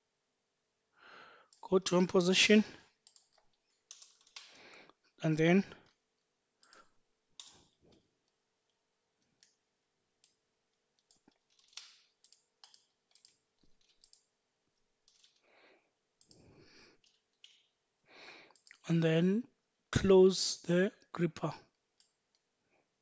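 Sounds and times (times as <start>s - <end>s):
keyboard typing clicks: 3.0s - 4.5s, 11.0s - 14.3s, 15.0s - 15.4s.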